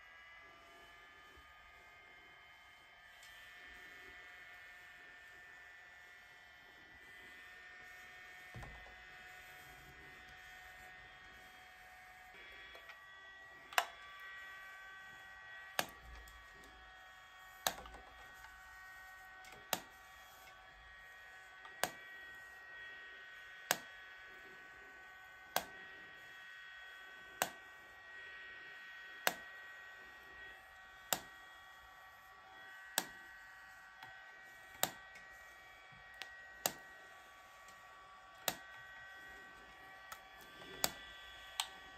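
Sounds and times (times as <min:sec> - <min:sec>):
steady high whine: 0:00.0 - 0:41.9
hair-removal device flash clicking: 0:13.6 - 0:14.8, 0:15.7 - 0:16.8, 0:17.5 - 0:18.8, 0:19.4 - 0:20.6, 0:21.5 - 0:22.1, 0:23.6 - 0:24.0, 0:25.4 - 0:25.8, 0:27.4 - 0:27.7, 0:29.2 - 0:29.6, 0:30.9 - 0:31.6, 0:32.8 - 0:35.4, 0:36.1 - 0:41.9.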